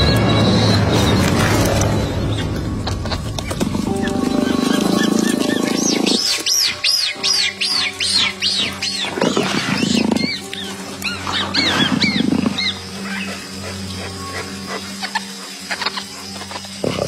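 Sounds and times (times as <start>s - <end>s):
background music: 0.0s - 17.0s
high squeaky calls: 0.0s - 17.0s
big cat growling: 8.8s - 17.0s.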